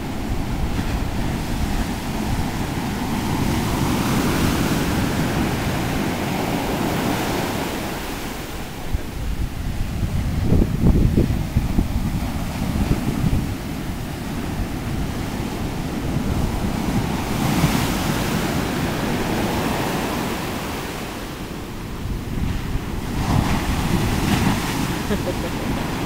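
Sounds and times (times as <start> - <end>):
surf crashing on sand: 0.0 - 26.0
wind buffeting microphone: 0.0 - 26.0.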